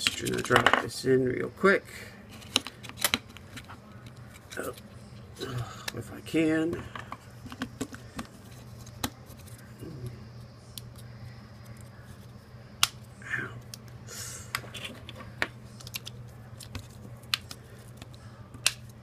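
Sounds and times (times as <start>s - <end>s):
sharp plastic snaps: 15.8s - 19.0s.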